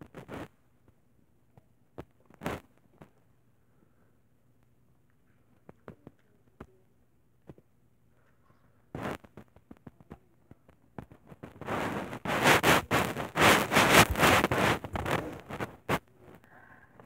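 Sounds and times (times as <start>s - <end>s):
microphone scraping and crackling: 0.0s - 0.6s, 9.0s - 10.0s, 11.0s - 16.4s.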